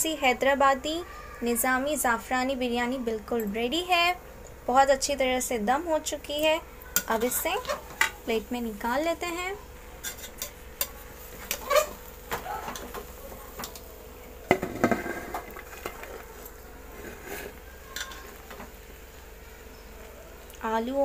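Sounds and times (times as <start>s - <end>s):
spoon scraping a metal pot: 7.0s - 8.2s, 10.0s - 12.0s, 16.9s - 18.4s.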